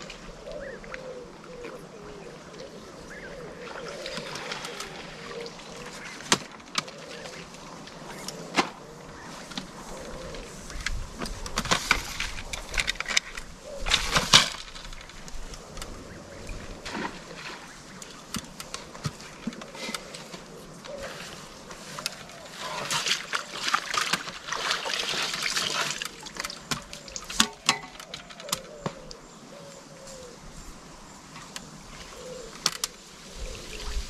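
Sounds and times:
fishing tackle clicks and knocks: 10.7s - 16.0s, 26.0s - 29.2s.

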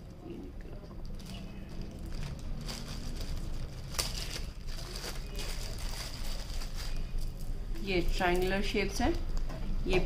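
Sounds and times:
plastic packet crinkling: 1.0s - 7.6s.

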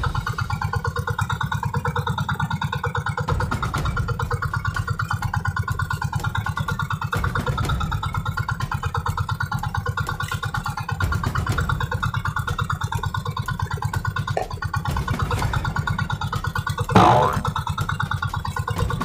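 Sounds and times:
boat engine running: 16.0s - 18.3s.

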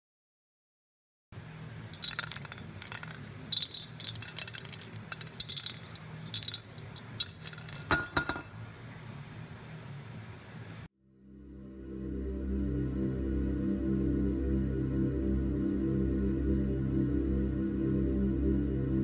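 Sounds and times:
spray can ball rattling: 1.8s - 8.5s
metal can clanking on surface: 7.2s - 8.5s.

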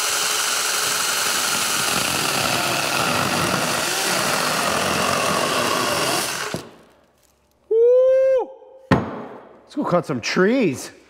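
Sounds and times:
chainsaw cutting wood: 0.0s - 7.0s.

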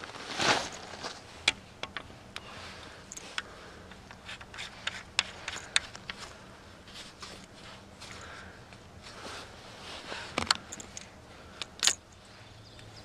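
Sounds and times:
crunching rustle: 0.0s - 1.5s
soft rubbing: 2.5s - 11.0s.

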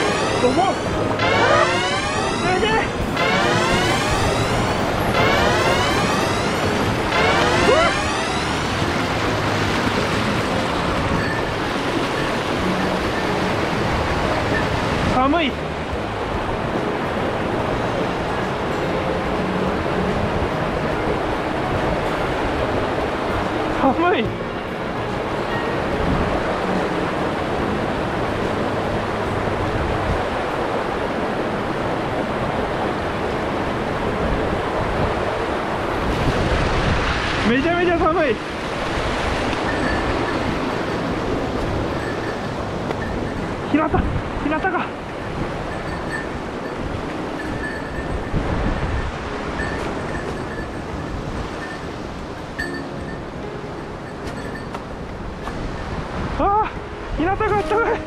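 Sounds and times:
stream rushing: 0.0s - 58.0s.

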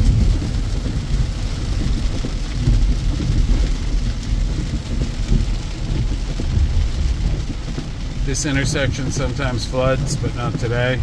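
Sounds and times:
heavy rain on vehicle roof: 0.0s - 11.0s
van driving rumble: 0.0s - 11.0s.

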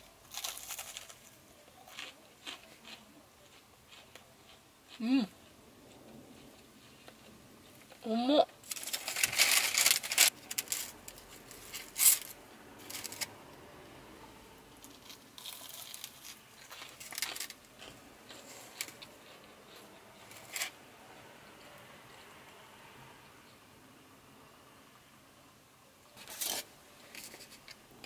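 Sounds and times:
plastic bag crinkling: 0.3s - 1.4s, 8.6s - 13.3s, 14.9s - 19.4s.

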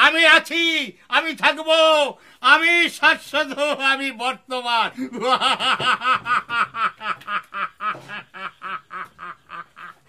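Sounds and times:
theatrical villain's laugh: 4.9s - 10.0s.

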